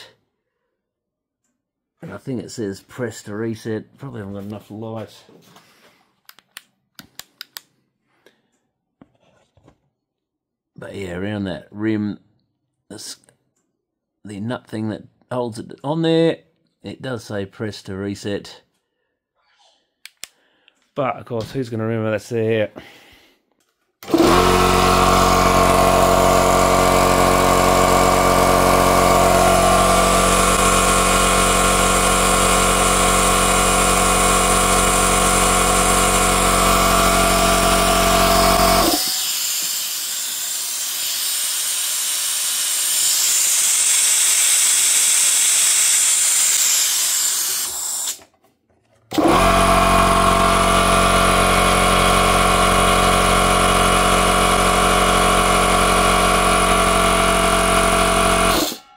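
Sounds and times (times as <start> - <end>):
air compressor running: 24.0 - 48.3, 49.1 - 58.9.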